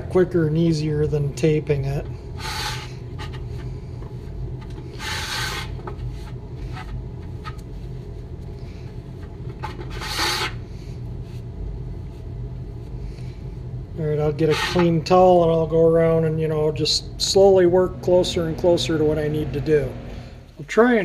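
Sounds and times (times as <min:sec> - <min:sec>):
steady low hum: 0:00.0 - 0:21.0
towel wiping metal: 0:02.4 - 0:08.2, 0:14.2 - 0:15.1.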